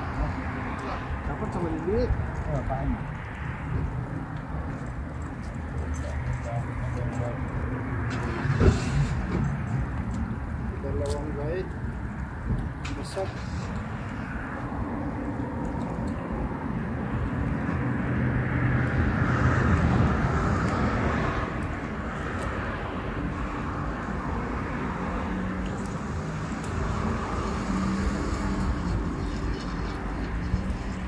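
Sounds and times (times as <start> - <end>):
distant engine rumble: 0.0 - 18.2.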